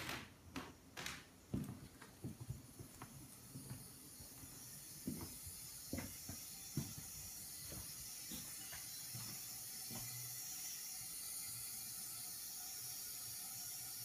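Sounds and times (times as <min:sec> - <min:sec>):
footsteps on tile floor: 0:00.0 - 0:10.2.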